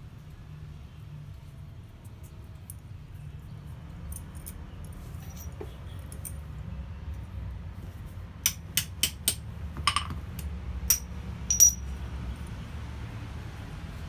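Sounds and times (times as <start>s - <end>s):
metal taps on steel block: 8.4s - 10.2s, 10.9s - 11.8s.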